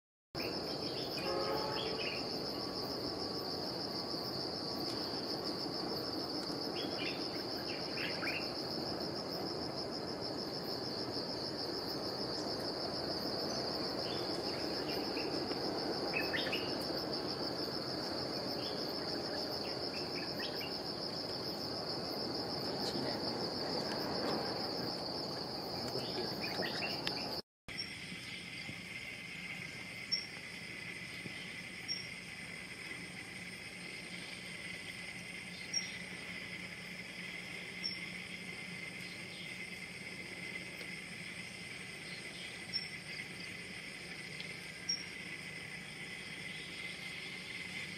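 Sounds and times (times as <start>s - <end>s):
insects droning: 0.4s - 47.9s.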